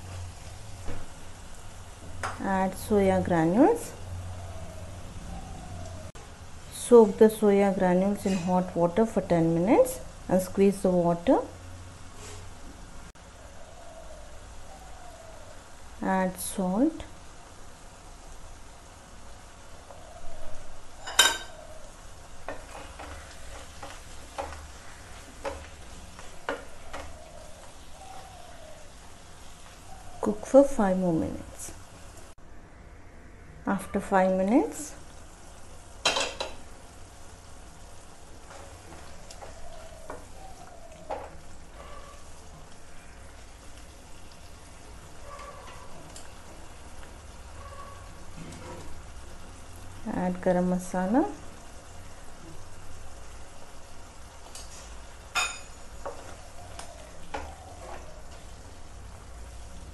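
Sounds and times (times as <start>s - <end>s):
curry sizzling in a pan: 0.0s - 5.2s, 5.9s - 32.4s, 34.0s - 59.9s
wooden spatula knocking on pan: 25.4s - 25.7s.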